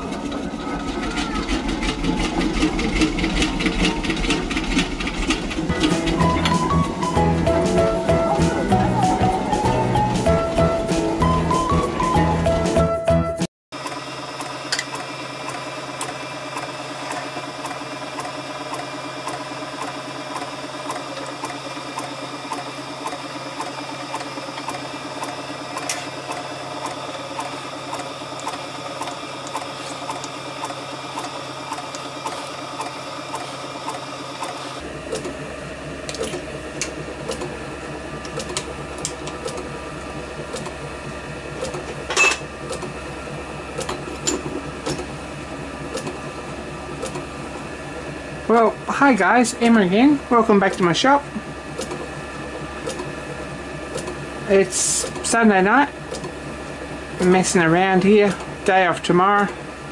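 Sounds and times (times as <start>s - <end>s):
lathe humming and ticking: 13.8s - 59.9s.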